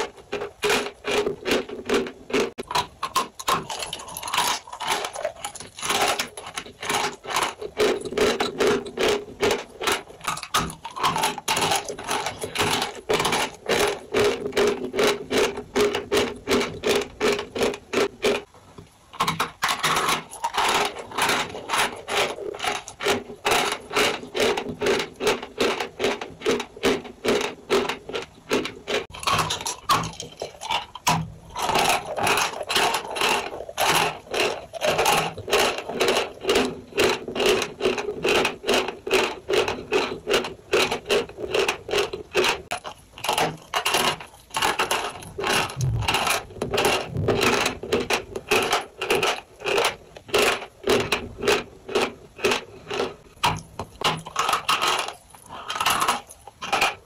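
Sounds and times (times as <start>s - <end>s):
chalk crunching while chewed: 0.0s - 18.1s, 29.1s - 50.3s, 51.9s - 57.0s.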